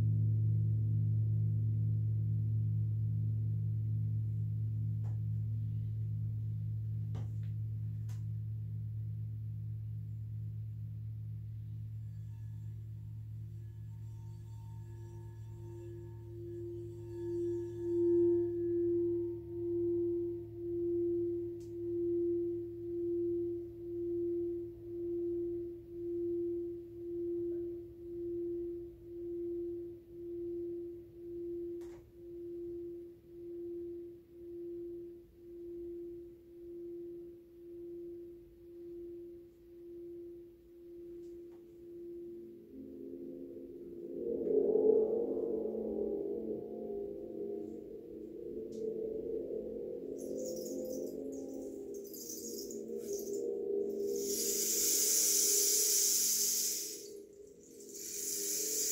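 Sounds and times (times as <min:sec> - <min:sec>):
gong with deep tones: 0:00.0 - 0:29.1, 0:41.1 - 0:54.4
singing bowl ringing: 0:11.6 - 0:44.4, 0:46.6 - 0:58.9.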